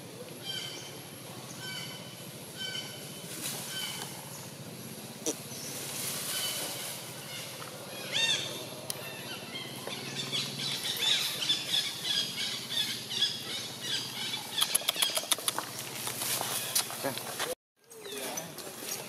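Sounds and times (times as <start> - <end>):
birds chirping and calling: 0.1 - 19.0
sharp clicks: 14.6 - 15.8.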